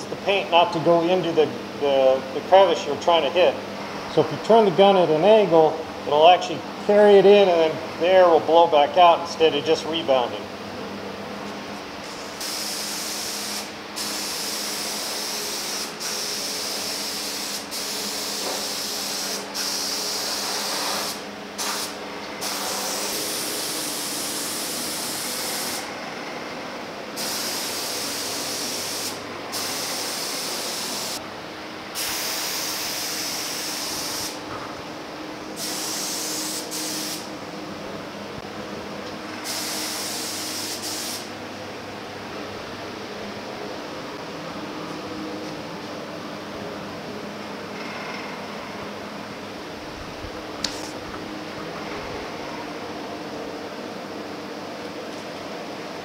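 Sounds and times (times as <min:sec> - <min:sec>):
paint spray gun hissing: 0:12.1 - 0:25.9, 0:27.2 - 0:31.2, 0:32.0 - 0:34.4, 0:35.6 - 0:37.3, 0:39.4 - 0:41.3.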